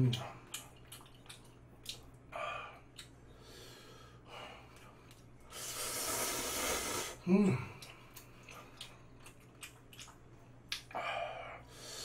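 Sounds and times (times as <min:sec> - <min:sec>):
hissing slurp of noodles: 0:05.5 - 0:07.2.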